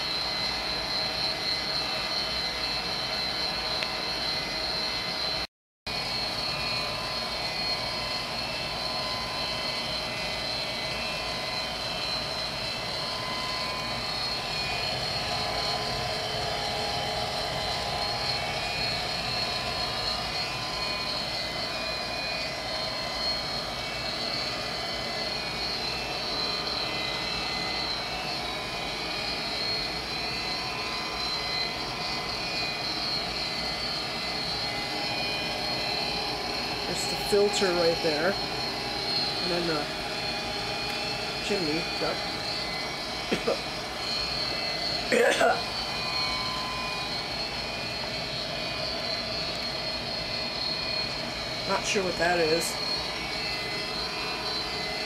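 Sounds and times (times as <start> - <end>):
high whine: 0.0 - 55.0
gas furnace running: 11.2 - 21.2, 30.5 - 55.0.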